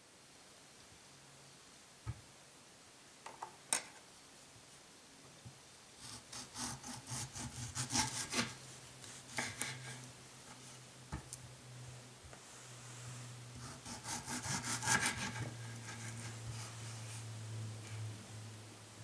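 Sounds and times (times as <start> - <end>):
knife sawing through fruit: 6.0 - 10.0, 13.6 - 17.1.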